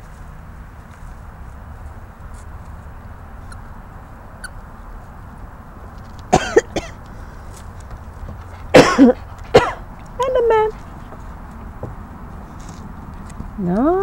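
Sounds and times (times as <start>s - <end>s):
low background rumble: 0.0s - 14.0s
person coughing: 6.3s - 7.0s, 8.7s - 9.8s.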